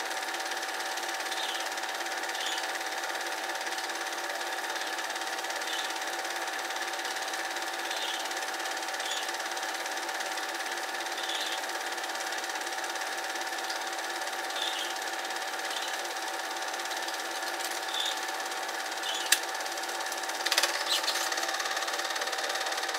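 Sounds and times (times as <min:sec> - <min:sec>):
film projector whirring: 0:00.0 - 0:22.9.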